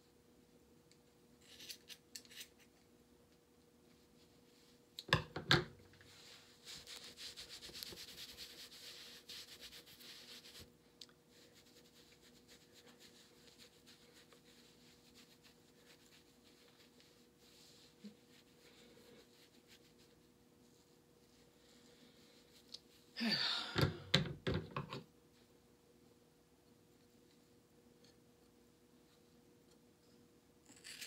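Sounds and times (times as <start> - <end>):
hands rubbing through hair: 6.0 - 21.6.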